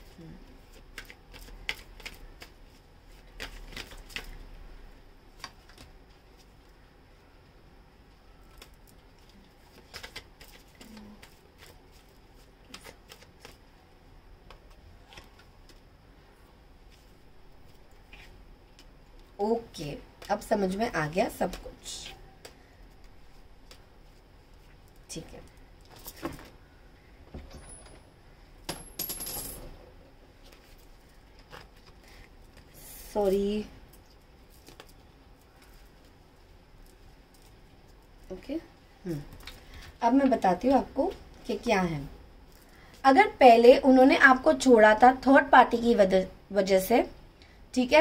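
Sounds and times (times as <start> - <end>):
cards flicking and tapping on table: 0.8 - 2.6.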